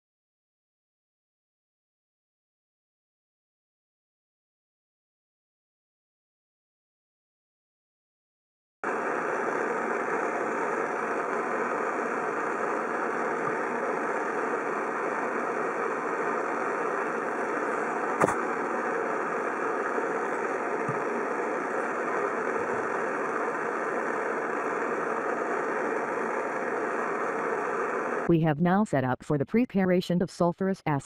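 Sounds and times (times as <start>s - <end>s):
machine hum and rush: 8.8s - 28.3s.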